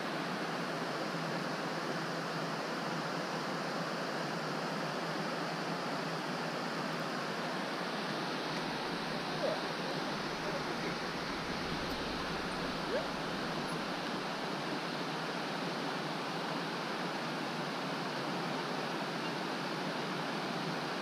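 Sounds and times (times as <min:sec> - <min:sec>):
water rushing over weir: 0:07.0 - 0:21.0.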